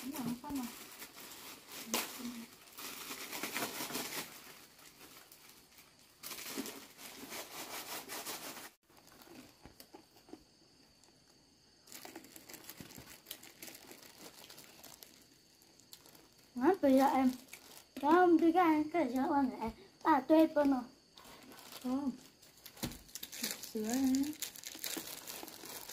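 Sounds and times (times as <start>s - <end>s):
rustling and crinkling: 0.0s - 19.6s, 20.4s - 25.9s.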